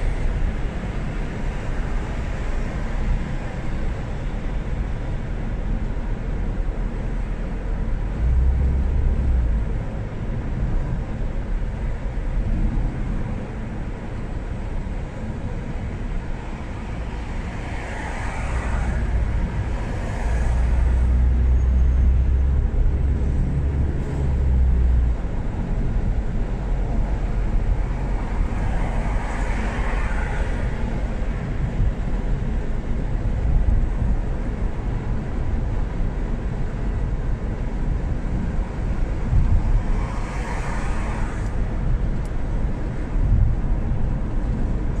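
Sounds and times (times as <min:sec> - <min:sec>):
car engine and road rumble: 0:00.0 - 0:45.0
hiss of passing traffic: 0:16.0 - 0:25.1, 0:27.2 - 0:32.3, 0:38.6 - 0:44.0.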